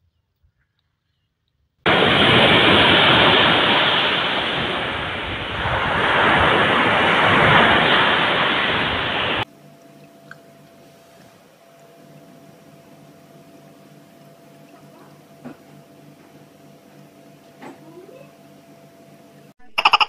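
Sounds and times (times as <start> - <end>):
waves breaking on beach: 1.9 - 9.5.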